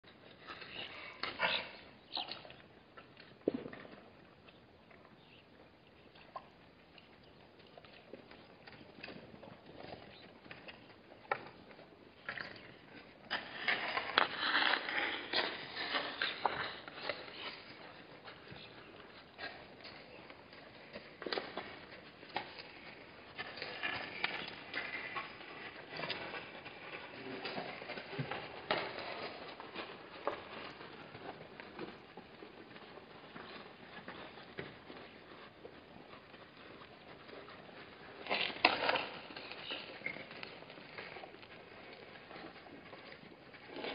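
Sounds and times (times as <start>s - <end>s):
hooves scuffing gravelly sand: 5.2s - 43.9s
scraping on microphone: 12.4s - 43.9s.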